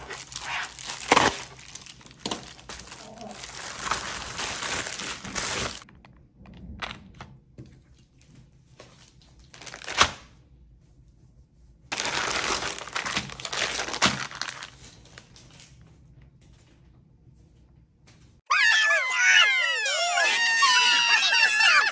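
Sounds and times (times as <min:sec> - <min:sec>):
plastic packaging crinkling: 0:00.0 - 0:06.0, 0:08.8 - 0:10.3, 0:11.9 - 0:15.8.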